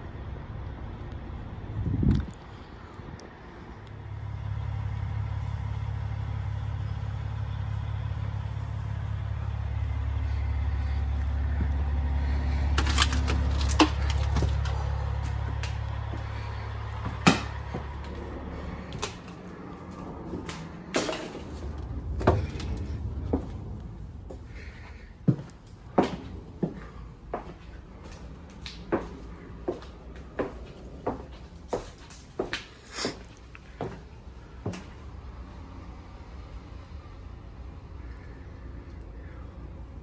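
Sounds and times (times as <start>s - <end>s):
low steady rumble: 0.0s - 32.4s
footsteps on debris: 12.3s - 18.3s
knocks clicks and creaks: 12.6s - 24.4s.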